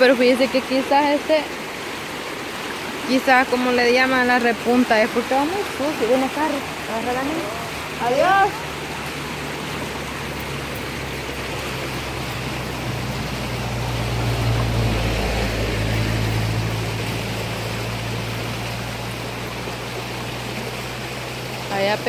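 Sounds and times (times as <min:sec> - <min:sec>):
low engine hum: 0:00.0 - 0:22.0
river rushing: 0:00.0 - 0:22.0.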